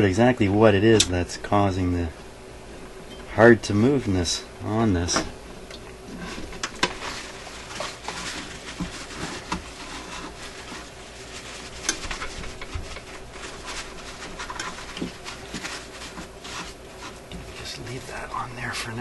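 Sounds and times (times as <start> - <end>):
paper towel rustling and crumpling: 6.1 - 18.2.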